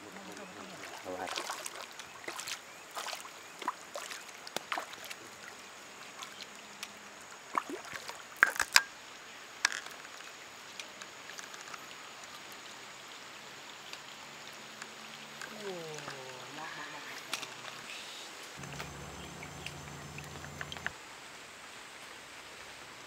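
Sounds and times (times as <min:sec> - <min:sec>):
fish splashing in water: 0:00.0 - 0:06.5, 0:07.5 - 0:08.8, 0:18.6 - 0:20.9.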